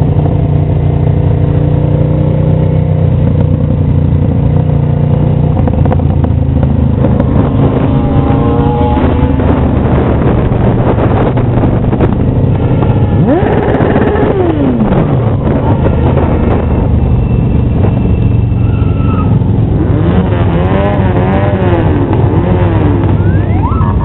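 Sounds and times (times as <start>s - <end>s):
motorcycle engines droning: 0.0s - 24.0s
motorcycle engines revving: 0.0s - 24.0s.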